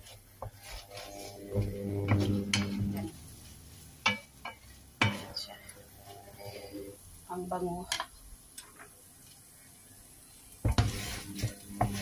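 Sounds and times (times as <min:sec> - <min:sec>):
spatula scraping frying pan: 0:00.0 - 0:06.8, 0:10.6 - 0:12.0.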